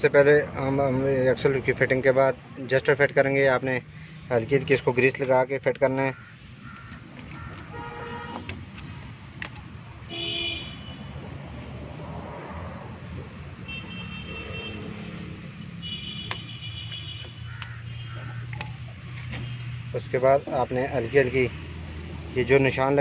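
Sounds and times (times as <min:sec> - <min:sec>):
road traffic rumble: 0:00.0 - 0:23.0
car horn toots: 0:07.6 - 0:08.6, 0:10.1 - 0:11.1, 0:13.6 - 0:15.1, 0:15.7 - 0:18.3.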